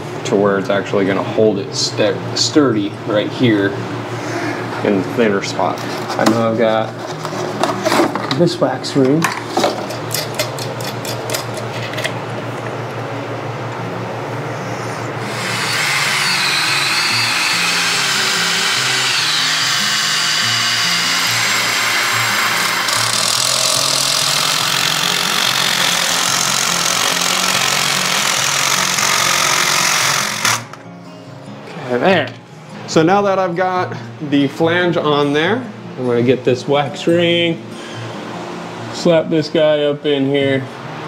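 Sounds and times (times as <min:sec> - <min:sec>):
cordless driver whirring: 0:15.2 - 0:30.8.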